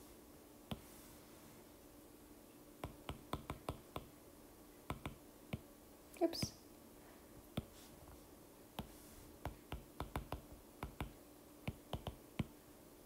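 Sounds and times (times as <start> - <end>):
taps on a touchscreen: 2.8 - 4.1, 4.9 - 5.7, 8.8 - 12.5.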